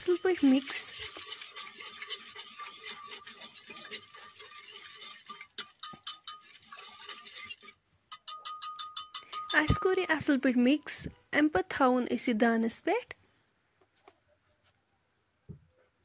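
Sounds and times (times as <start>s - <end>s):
whisk beating in metal pot: 0.0s - 9.9s.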